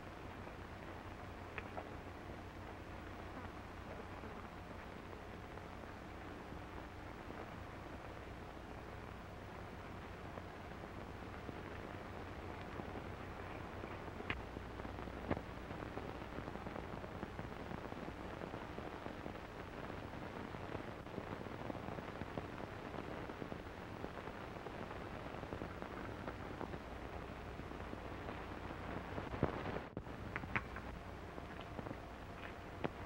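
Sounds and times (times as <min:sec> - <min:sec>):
film soundtrack hiss and crackle: 0:00.0 - 0:33.0
sharp clicks: 0:30.2 - 0:31.0.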